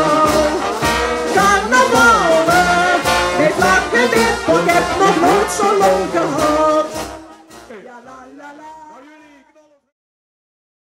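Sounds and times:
snare drum: 0.0s - 8.0s
bass drum beat: 0.0s - 9.0s
brass band playing: 0.0s - 9.5s.

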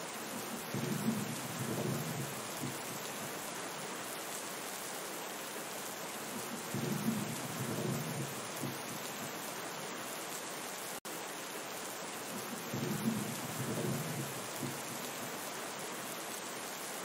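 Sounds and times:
heavy rain hiss: 0.0s - 17.0s
thunder rolling: 0.7s - 2.8s, 6.7s - 8.8s, 12.7s - 14.8s.

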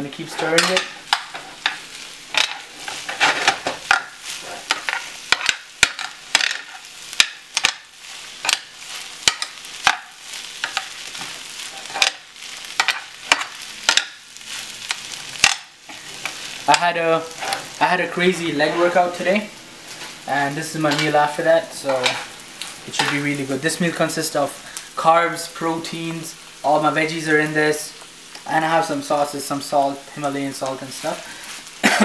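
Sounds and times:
frying sizzle: 0.0s - 32.0s
spatula scraping skillet: 0.1s - 19.2s.

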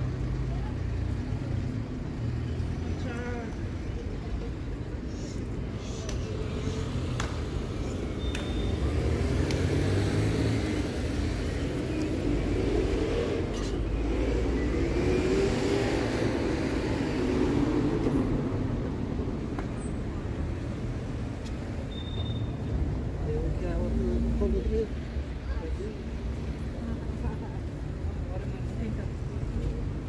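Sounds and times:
passing cars: 0.0s - 30.0s.

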